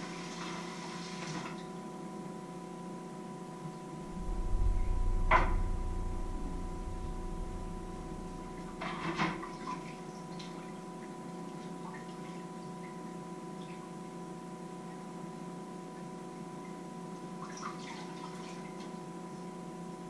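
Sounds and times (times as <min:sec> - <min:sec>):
electrical hum with high whine: 0:00.0 - 0:20.0
low rumble: 0:04.0 - 0:10.2.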